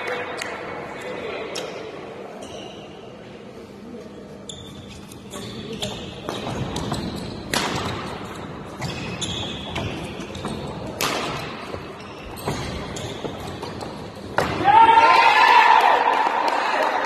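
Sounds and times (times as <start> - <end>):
shoe squeaks: 2.3 - 3.2, 4.4 - 11.0, 11.6 - 14.3
rackets striking shuttlecock: 5.7 - 14.6.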